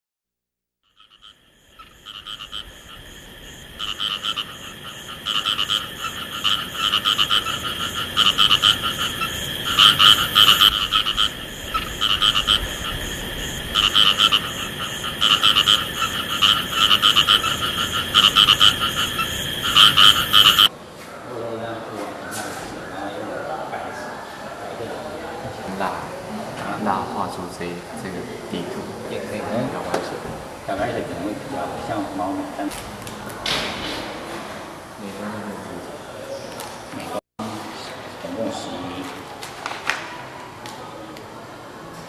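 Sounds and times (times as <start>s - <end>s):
frogs croaking in chorus: 0.8s - 20.7s.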